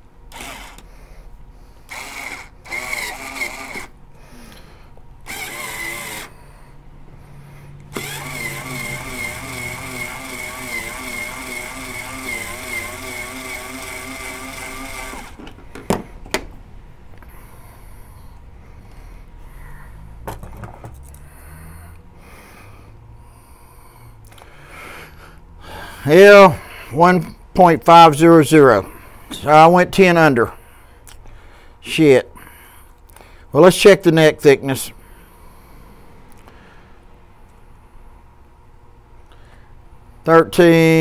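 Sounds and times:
cordless drill spinning cutter: 0:00.3 - 0:00.9, 0:01.9 - 0:04.0, 0:05.2 - 0:06.4, 0:07.9 - 0:15.4.

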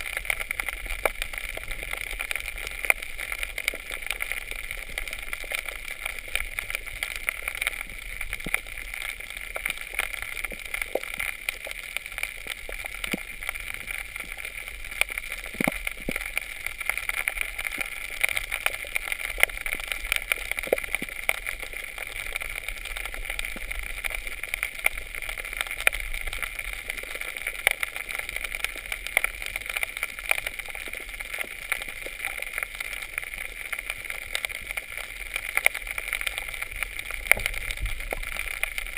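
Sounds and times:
crackle of sharp clicks: 0:00.0 - 0:38.9.

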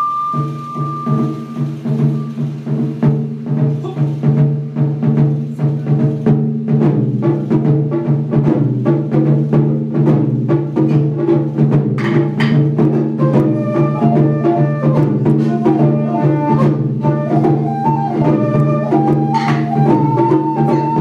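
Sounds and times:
higher stepped melody: 0:00.0 - 0:02.7
taiko drums beating: 0:00.0 - 0:21.0.

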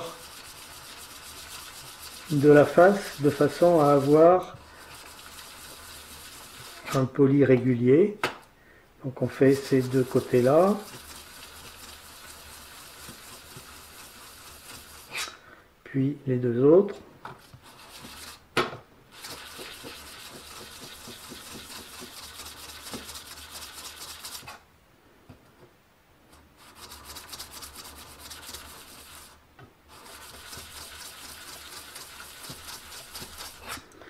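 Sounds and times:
scraper rubbing on abrasive paper: 0:00.0 - 0:07.1, 0:09.3 - 0:15.3, 0:17.4 - 0:18.4, 0:19.1 - 0:24.6, 0:26.6 - 0:33.9.

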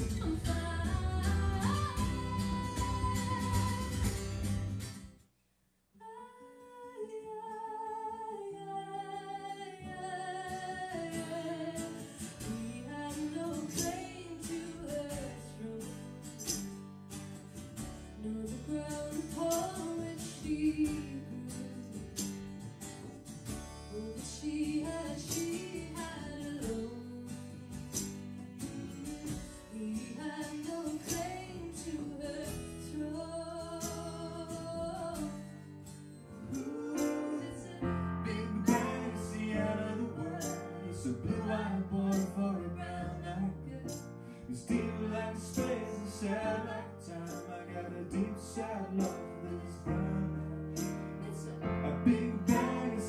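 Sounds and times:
woman singing with vibrato: 0:00.0 - 0:04.1, 0:06.0 - 0:15.8, 0:18.2 - 0:21.9, 0:24.0 - 0:27.4, 0:36.6 - 0:39.5
double bass: 0:00.0 - 0:05.1, 0:11.0 - 0:53.0
acoustic guitar: 0:00.0 - 0:05.6, 0:06.2 - 0:53.0.

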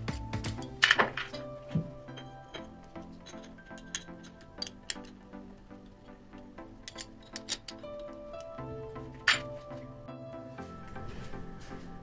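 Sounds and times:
background music: 0:00.0 - 0:12.0
sharp metal clicks and clinks: 0:06.8 - 0:08.2.

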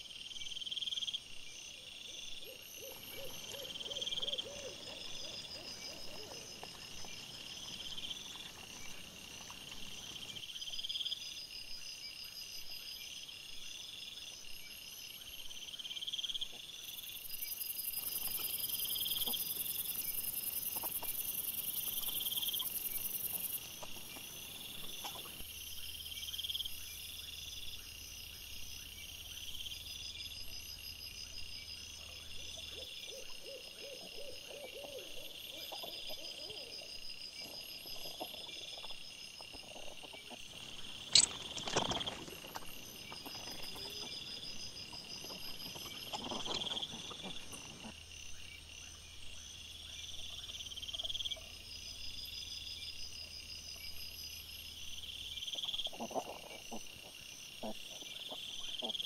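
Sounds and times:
night insects chirping: 0:00.0 - 0:59.0.

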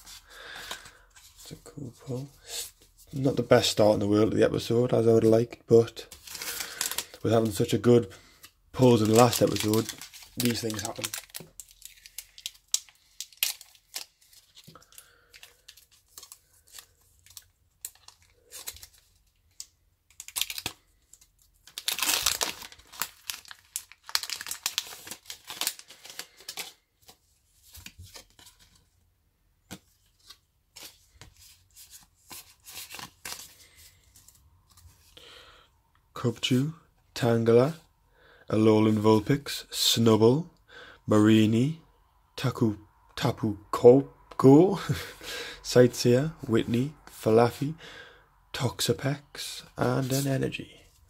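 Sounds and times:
foil pack crinkling and tearing: 0:06.1 - 0:07.7, 0:08.8 - 0:19.2, 0:20.1 - 0:27.1, 0:32.3 - 0:33.8
cards being handled: 0:29.6 - 0:35.1, 0:49.9 - 0:51.0.

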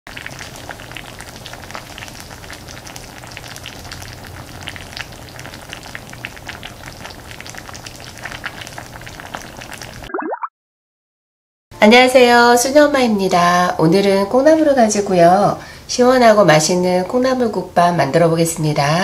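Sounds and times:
soup bubbling and sizzling: 0:00.1 - 0:10.2.

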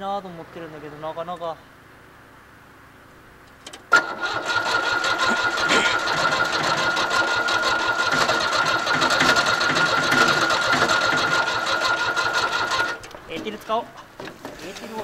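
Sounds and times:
diesel engine cranking and starting: 0:03.5 - 0:15.0.

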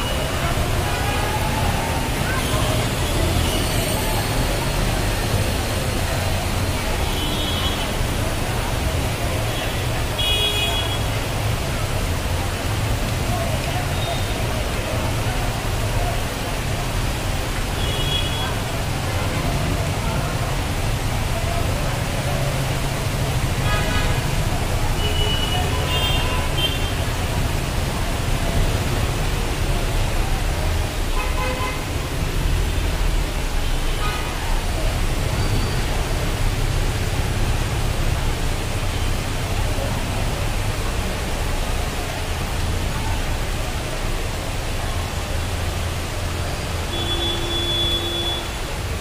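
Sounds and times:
floodwater rushing: 0:00.0 - 0:49.0
vehicle horns tooting: 0:46.9 - 0:48.6.

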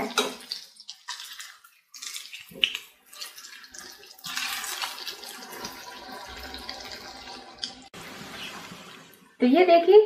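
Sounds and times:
food sizzling in hot oil: 0:00.0 - 0:09.4.

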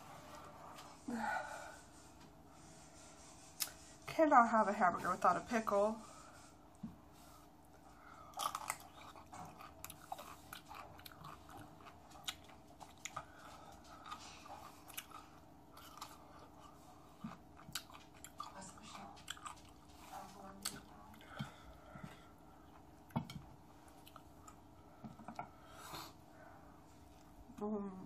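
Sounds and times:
wet chewing crunches: 0:08.2 - 0:21.5.

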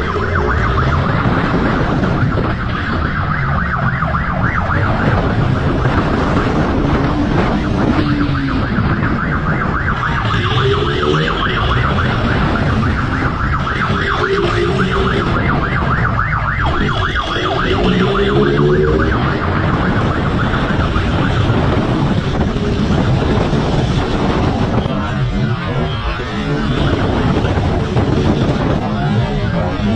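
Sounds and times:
siren yelping: 0:00.0 - 0:29.9
wind and road rumble: 0:00.0 - 0:29.9.

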